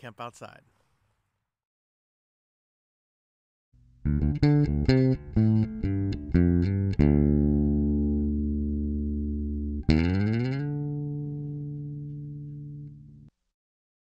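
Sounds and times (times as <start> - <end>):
guitar and bass music: 3.8 - 13.3.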